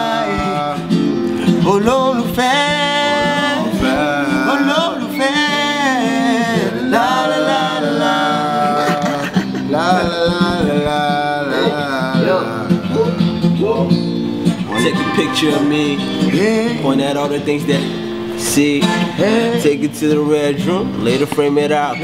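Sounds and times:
man singing wordless runs: 0.0s - 13.0s
acoustic guitar: 0.0s - 22.0s.

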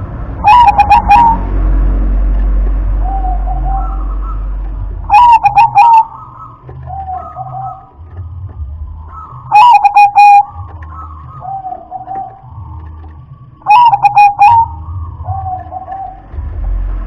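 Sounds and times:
zebra dove cooing: 0.4s - 1.5s, 3.0s - 8.0s, 9.0s - 16.3s.

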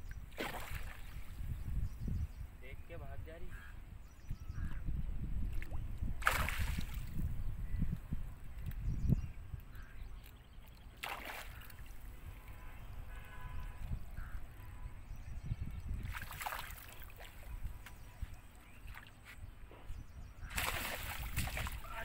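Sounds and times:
fish splashing at water surface: 6.2s - 7.1s, 11.0s - 11.8s, 16.1s - 17.4s, 20.5s - 21.9s.

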